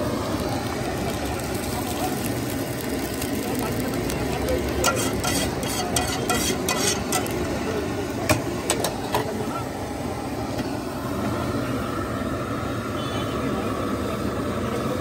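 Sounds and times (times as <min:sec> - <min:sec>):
frying sizzle: 0:00.0 - 0:15.0
metal spoon scraping steel pan: 0:04.8 - 0:07.3.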